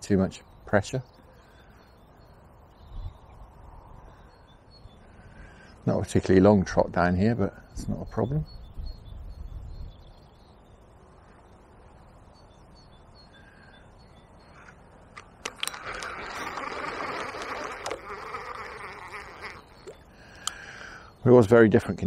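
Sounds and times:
faint steady background: 0:00.0 - 0:22.0
fishing reel clicks: 0:15.2 - 0:20.6
fishing reel winding in: 0:15.4 - 0:20.6.

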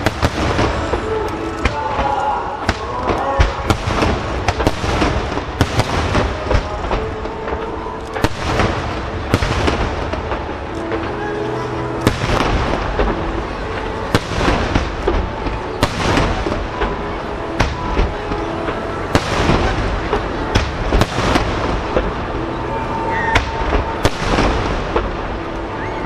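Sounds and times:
rolling echo of bangs: 0:00.0 - 0:07.4, 0:08.2 - 0:11.2, 0:12.0 - 0:22.4.

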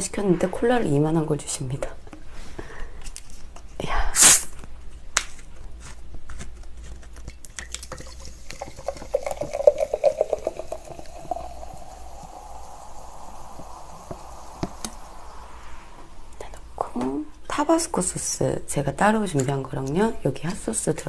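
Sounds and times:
liquid glugging into jar: 0:07.6 - 0:15.1
soda fizzing: 0:07.6 - 0:16.8.

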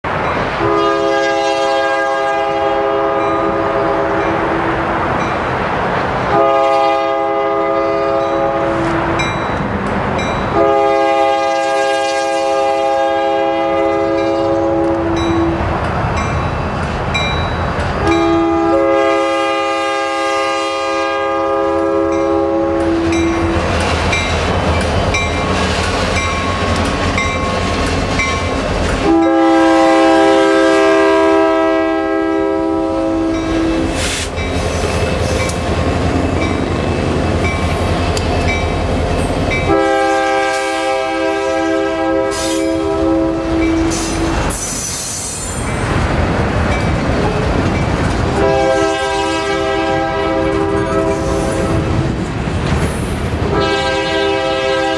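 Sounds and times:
freight train rumbling past: 0:00.0 - 0:54.9
locomotive air horn blasts: 0:00.6 - 0:04.5, 0:06.3 - 0:09.3, 0:10.5 - 0:15.6, 0:18.0 - 0:23.7, 0:29.0 - 0:35.5, 0:39.6 - 0:44.3, 0:48.3 - 0:52.1, 0:53.4 - 0:54.9
train wheels clattering on rails: 0:14.2 - 0:19.0, 0:21.7 - 0:29.4, 0:33.3 - 0:40.8, 0:43.5 - 0:53.8.

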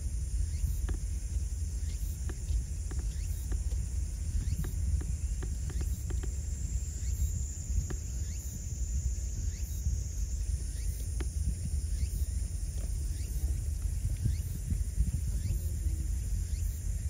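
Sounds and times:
wind rumble on microphone: 0:00.0 - 0:17.0
faint ticks: 0:00.2 - 0:08.8, 0:10.6 - 0:16.8.

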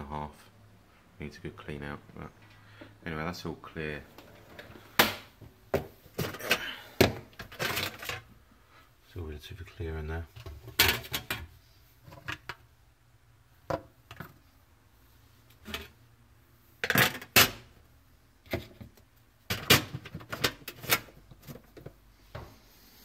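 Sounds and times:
hands handling dishwasher parts: 0:05.8 - 0:08.3, 0:10.4 - 0:12.6, 0:18.5 - 0:22.5.

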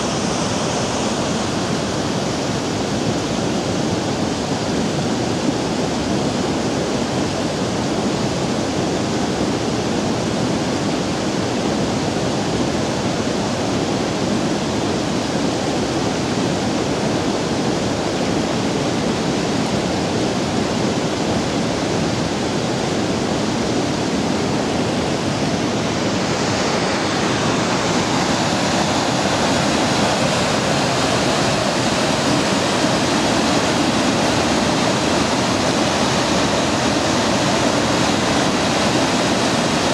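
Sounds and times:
river water tumbling over boulders: 0:00.0 - 0:39.9
small waterfall pouring: 0:26.4 - 0:39.9.

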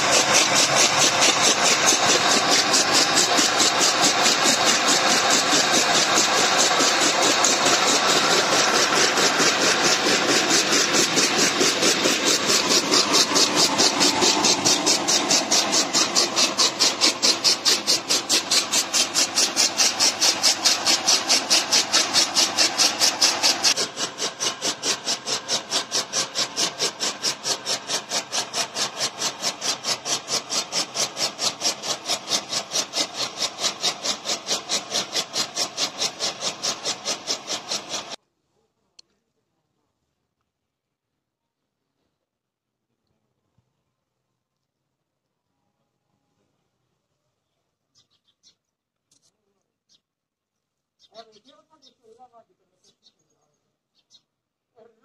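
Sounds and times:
chaff cutter blades chopping: 0:00.0 - 0:38.2.

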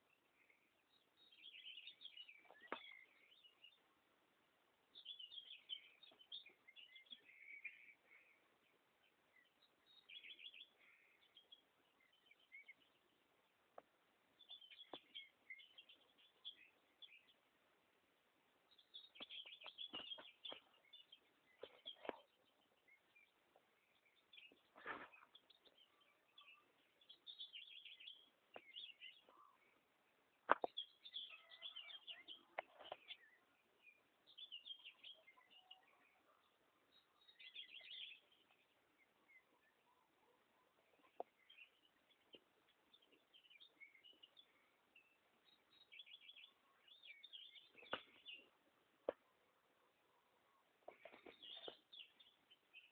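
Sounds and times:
small birds chirping: 0:00.0 - 0:52.9.

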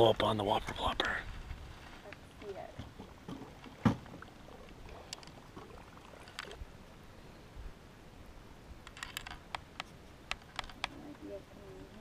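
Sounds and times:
open water ambience: 0:00.0 - 0:12.0
fishing tackle clicks and knocks: 0:05.0 - 0:05.4, 0:06.1 - 0:06.6, 0:08.8 - 0:11.2.

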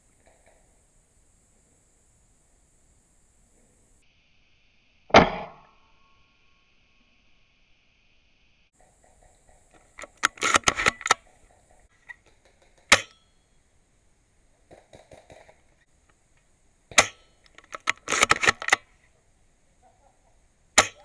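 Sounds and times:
rattling mechanical clicks: 0:09.2 - 0:11.5, 0:16.9 - 0:18.9.

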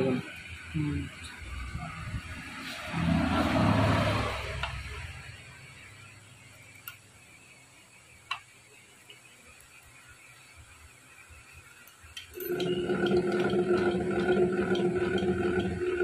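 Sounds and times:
small metallic clicks: 0:11.8 - 0:14.0.

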